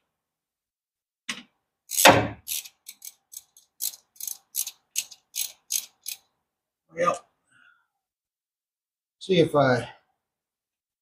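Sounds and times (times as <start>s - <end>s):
socket ratchet clicking: 1.9s - 6.3s.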